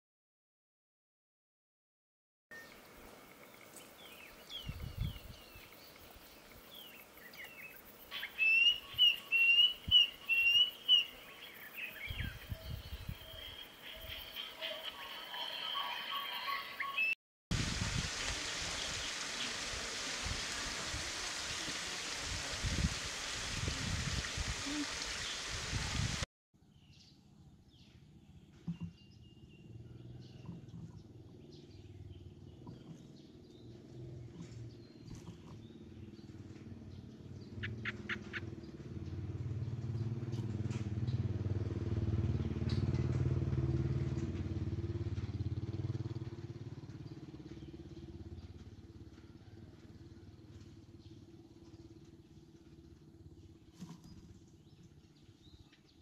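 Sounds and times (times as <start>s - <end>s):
bird chirps: 3.4s - 17.2s
vehicle engine passing by: 35.7s - 53.2s.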